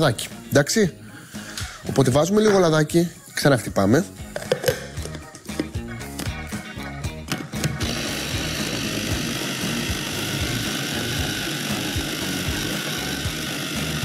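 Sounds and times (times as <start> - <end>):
electric chopper whirring: 7.6 - 14.0.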